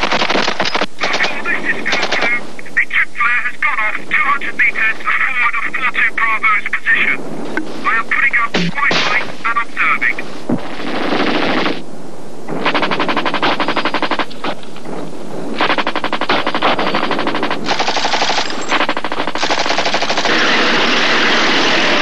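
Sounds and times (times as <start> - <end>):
automatic gunfire bursts: 0.0 - 2.4, 12.5 - 14.6, 15.6 - 22.0
steady rushing noise: 0.0 - 22.0.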